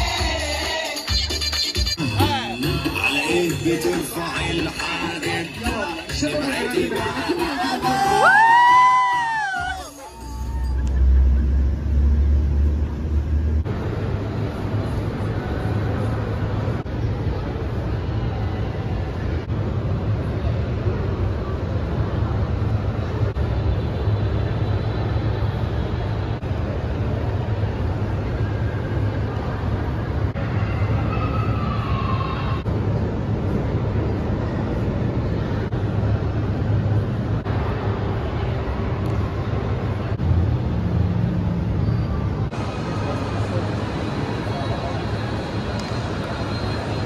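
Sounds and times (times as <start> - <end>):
murmur of voices: 2.0 - 12.0, 42.2 - 47.0
ventilation rumble: 10.5 - 47.0.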